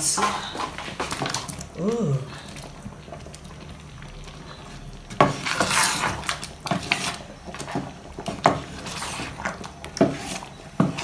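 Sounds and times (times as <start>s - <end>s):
spoon scraping pan: 5.1s - 11.0s.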